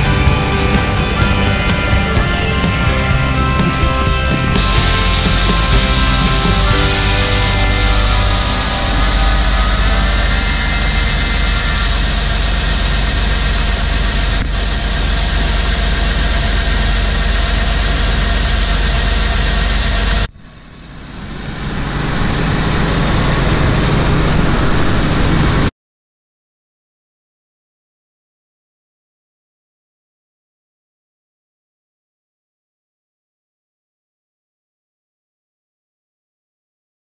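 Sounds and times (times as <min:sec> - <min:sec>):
farm machinery engine rumbling: 0:00.0 - 0:25.6.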